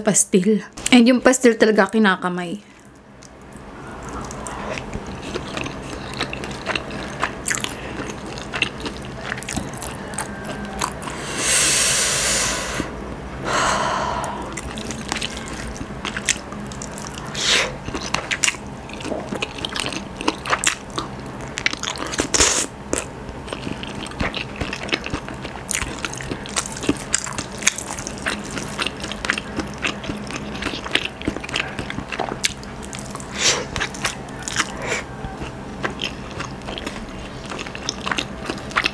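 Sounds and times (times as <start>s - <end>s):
chewing: 2.8s - 11.2s, 14.4s - 38.9s
breathy rushes: 11.0s - 14.6s.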